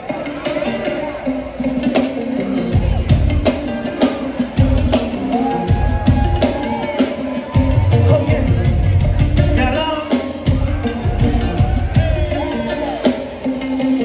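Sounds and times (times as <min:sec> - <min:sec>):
drum kit beat: 0:00.0 - 0:14.0
live band playing: 0:00.0 - 0:14.0.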